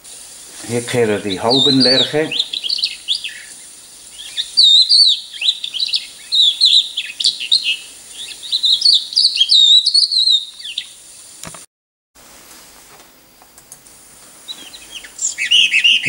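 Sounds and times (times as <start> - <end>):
lark song: 0.2 - 11.3, 14.4 - 16.0.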